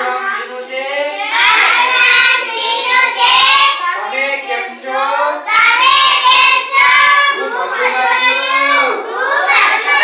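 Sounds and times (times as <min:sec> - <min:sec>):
children chanting in unison: 0:00.0 - 0:04.8, 0:05.4 - 0:10.0.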